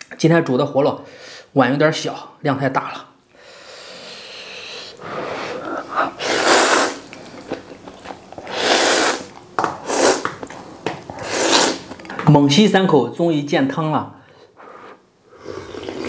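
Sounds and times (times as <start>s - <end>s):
person slurping noodles: 3.7s - 10.4s, 11.1s - 12.0s, 14.7s - 16.0s.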